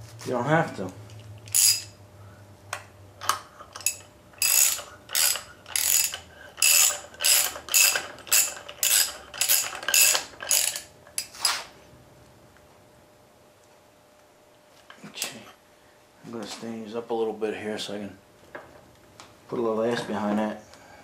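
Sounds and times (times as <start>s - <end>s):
ratchet wrench clicking: 1.5s - 2.0s, 3.2s - 10.9s.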